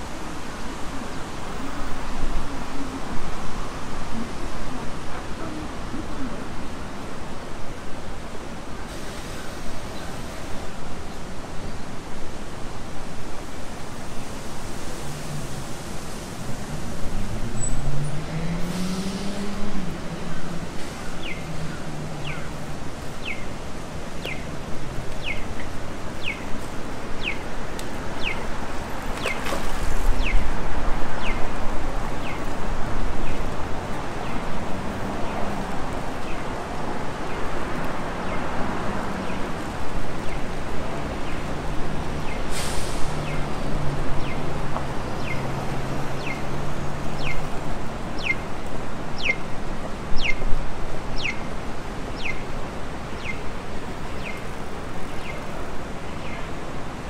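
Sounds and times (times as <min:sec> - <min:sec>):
traffic hum: 0:00.0 - 0:57.0
brief sharp hiss: 0:42.5 - 0:43.3.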